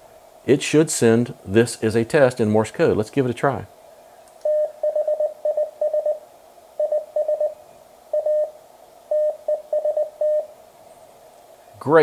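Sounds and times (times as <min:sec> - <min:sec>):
morse code tone: 0:04.5 - 0:06.2, 0:06.8 - 0:10.5.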